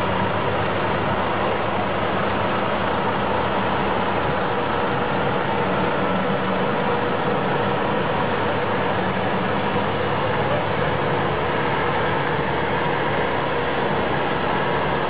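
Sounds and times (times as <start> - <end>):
engine running steadily: 0.0 - 15.0.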